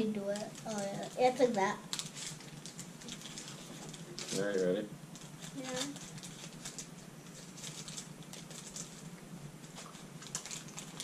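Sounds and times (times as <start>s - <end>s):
candy wrappers crinkling: 0.2s - 11.0s.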